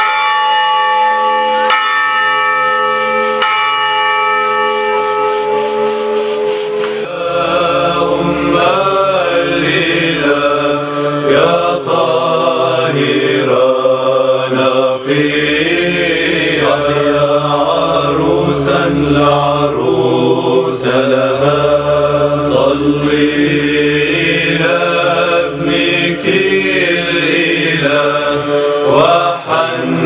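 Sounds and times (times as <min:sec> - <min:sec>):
bell-like ringing tones: 0:00.0 - 0:07.1
chanted gliding melody: 0:00.0 - 0:18.5.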